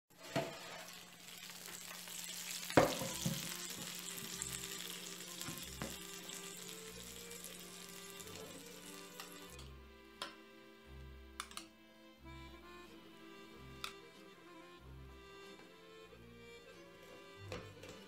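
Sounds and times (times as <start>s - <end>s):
chicken sizzling in a baking pan: 0.1s - 9.7s.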